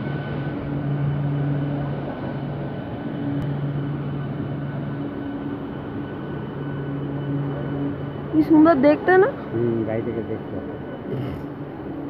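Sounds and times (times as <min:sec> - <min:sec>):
train rumbling past: 0:00.0 - 0:12.0.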